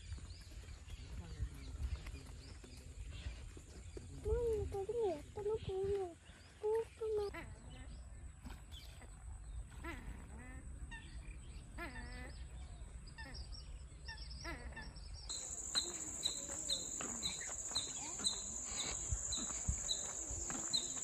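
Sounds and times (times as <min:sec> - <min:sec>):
wild birds calling: 0:11.0 - 0:21.0
high insect drone: 0:15.3 - 0:21.0.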